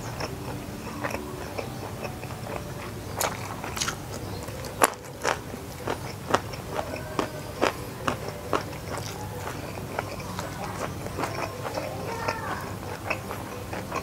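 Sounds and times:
crisp food crunching: 0.0s - 14.0s
person chewing: 0.0s - 14.0s.

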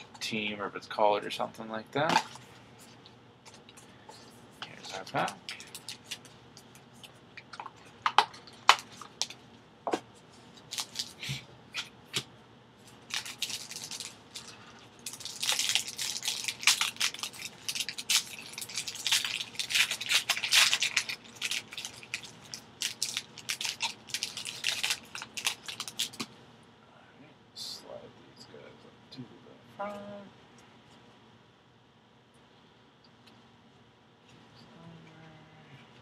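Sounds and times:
plastic wrapper crinkling and tearing: 4.8s - 9.4s, 10.6s - 11.2s, 12.9s - 26.3s.

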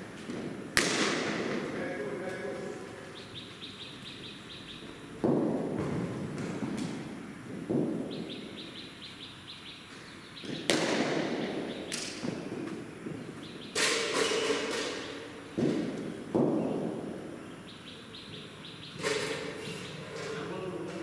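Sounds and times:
bird chirping rapidly: 3.1s - 5.0s, 8.1s - 10.7s, 11.4s - 12.0s, 17.6s - 19.0s
cricket ball knocks and thuds: 5.2s - 7.0s, 7.6s - 8.1s, 10.4s - 15.0s, 15.6s - 17.0s.

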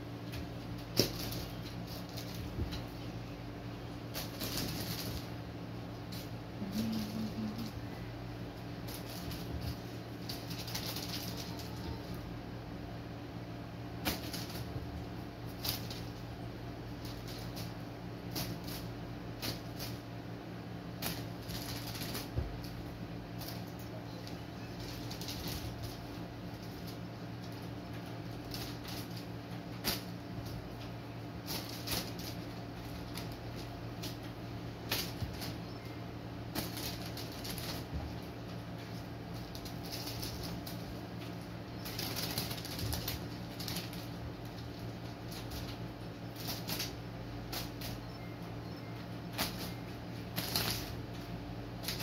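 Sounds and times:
low room hum: 0.0s - 52.0s
kitten scampering on bedding: 36.5s - 48.2s.

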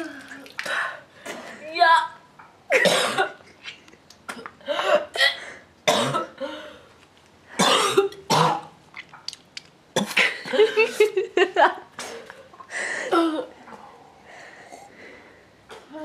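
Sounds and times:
person coughing and spluttering: 2.7s - 3.7s, 4.3s - 6.4s, 7.6s - 9.2s, 10.0s - 11.2s.

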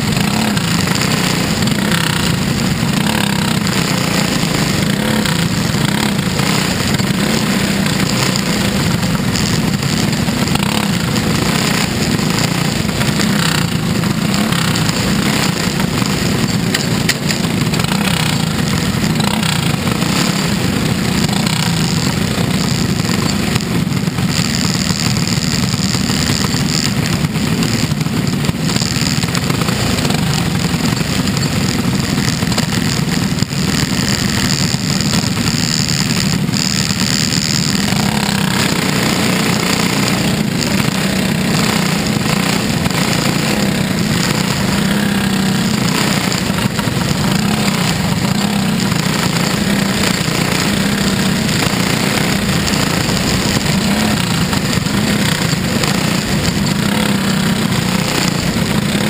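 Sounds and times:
race car engine running loud: 0.0s - 59.0s.

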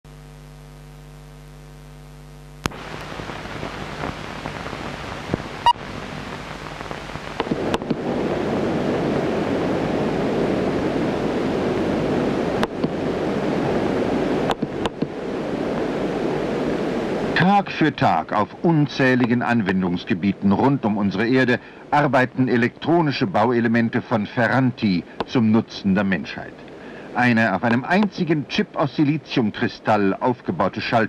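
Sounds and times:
crackles and pops: 0.1s - 30.5s
electrical hum: 0.1s - 31.0s
film hiss: 0.1s - 31.0s.

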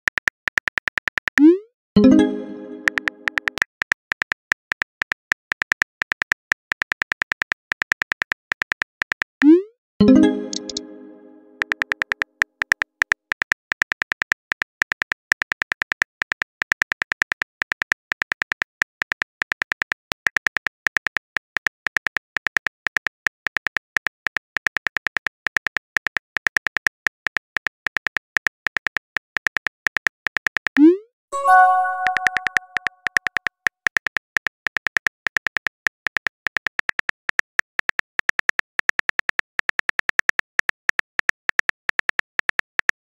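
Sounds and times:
on-screen keyboard clicks: 1.4s - 3.6s, 9.4s - 13.5s, 30.8s - 33.2s
message sent chime: 2.0s - 3.5s, 10.0s - 11.6s, 31.4s - 33.0s.

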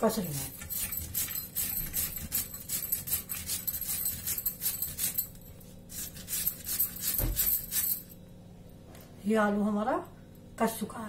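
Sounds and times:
potato rasping on hand grater: 0.2s - 5.2s, 5.9s - 7.8s.

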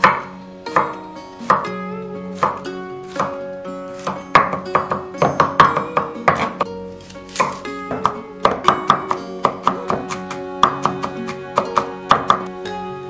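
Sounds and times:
knife chopping on wooden board: 0.0s - 1.7s, 2.4s - 3.4s, 4.0s - 6.7s, 7.3s - 12.5s
background music: 0.0s - 13.0s.

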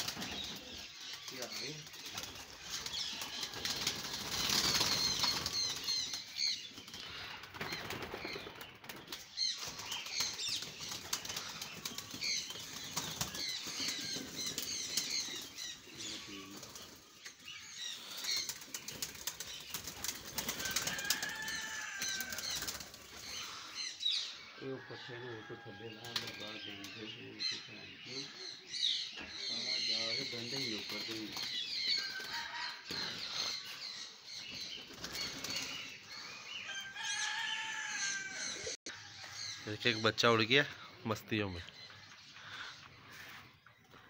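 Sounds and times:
pigeons flapping wings: 0.0s - 17.0s, 18.0s - 23.3s, 34.8s - 35.9s.

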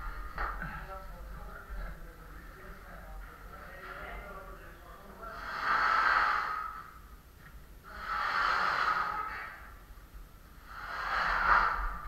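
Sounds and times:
heavy breathing: 5.1s - 7.1s, 7.8s - 9.9s, 10.5s - 12.0s.

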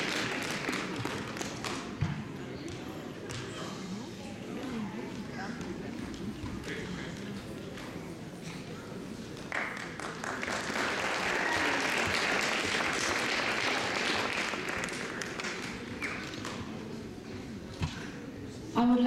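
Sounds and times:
audience applauding: 0.0s - 1.8s, 9.5s - 16.6s.

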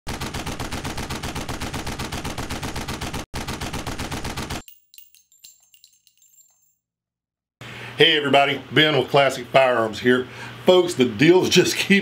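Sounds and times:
automatic gunfire: 0.1s - 4.6s
light metallic clinks: 4.6s - 6.9s.

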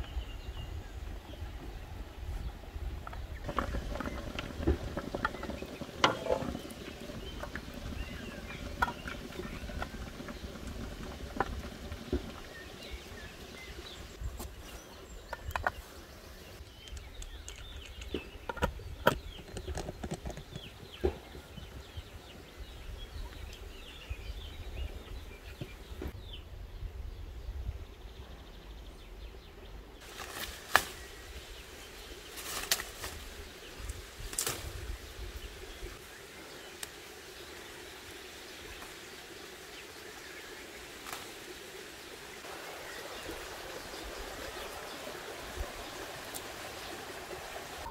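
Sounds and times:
birds chirping: 0.0s - 47.9s.

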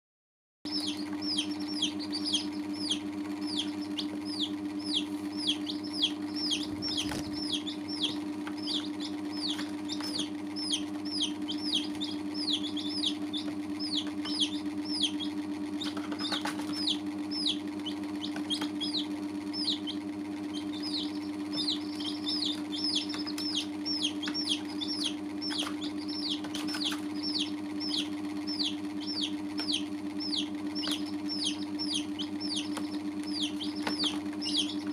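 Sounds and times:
baby chicks peeping: 0.7s - 34.9s
steady low hum: 0.7s - 34.9s.

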